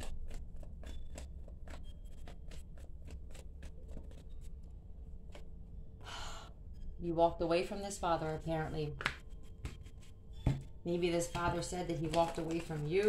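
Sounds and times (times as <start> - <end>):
cards being shuffled: 0.0 - 4.5, 11.3 - 13.0
low steady hum: 0.0 - 13.0.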